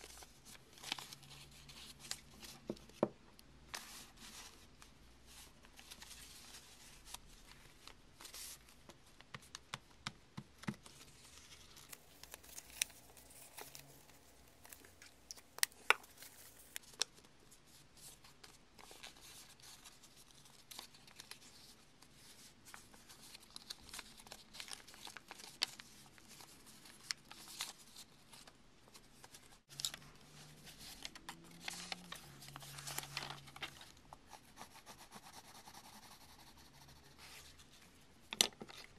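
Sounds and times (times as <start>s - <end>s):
paper crinkling: 10.6s - 17.3s, 18.0s - 34.6s.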